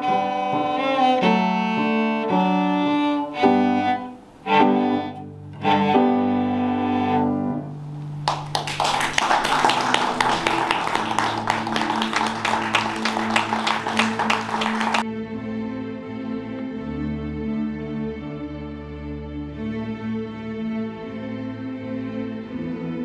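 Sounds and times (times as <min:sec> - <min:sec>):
cello and piano: 0:00.0 - 0:08.2
applause: 0:08.2 - 0:15.0.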